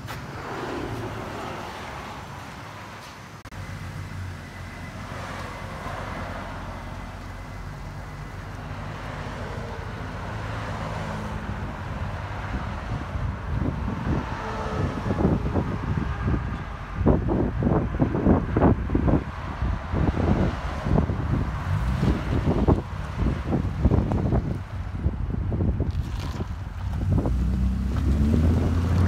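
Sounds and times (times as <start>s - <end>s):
wind buffeting microphone: 11.5s - 29.0s.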